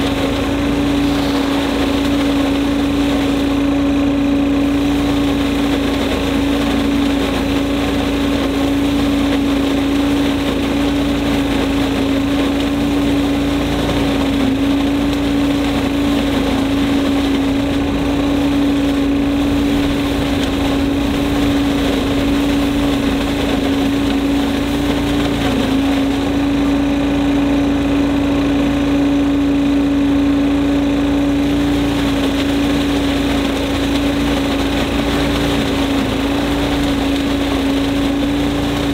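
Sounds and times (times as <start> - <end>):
leaves sucked up hose: 0.0 - 5.0
leaf vacuum engine humming: 0.0 - 38.9.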